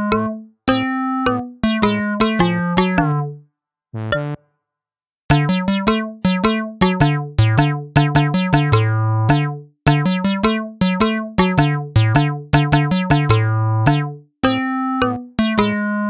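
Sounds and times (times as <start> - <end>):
plucky keyboard melody: 0.0 - 3.4, 4.0 - 4.4, 5.3 - 16.0.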